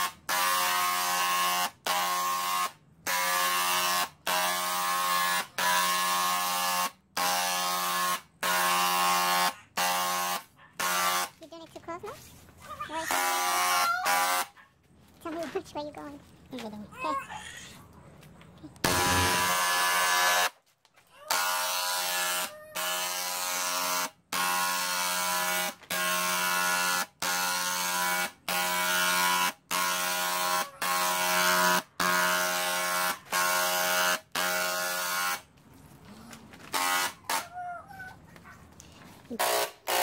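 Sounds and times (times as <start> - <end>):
electric paint spray gun buzzing: 0.0 - 11.4, 13.1 - 14.5, 18.8 - 20.6, 21.3 - 35.5, 36.7 - 37.4, 39.4 - 40.0.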